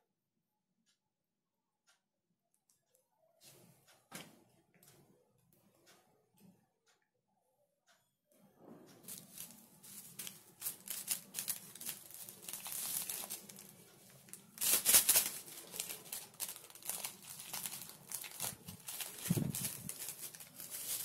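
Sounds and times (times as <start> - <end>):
packet crinkling and rustling: 9.0 - 21.0.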